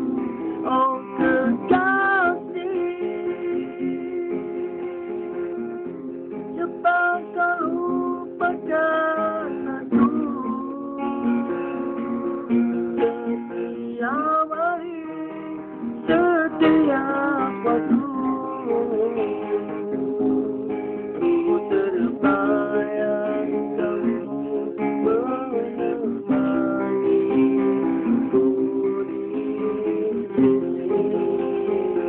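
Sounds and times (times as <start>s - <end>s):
acoustic guitar strumming chords: 0.0s - 32.0s.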